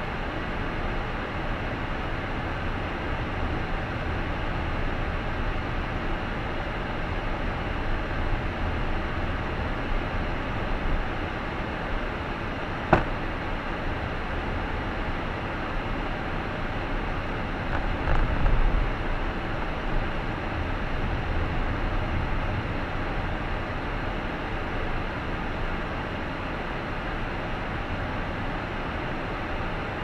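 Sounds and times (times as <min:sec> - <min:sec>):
car driving road noise: 0:01.6 - 0:24.0
sharp knock: 0:12.9 - 0:13.2.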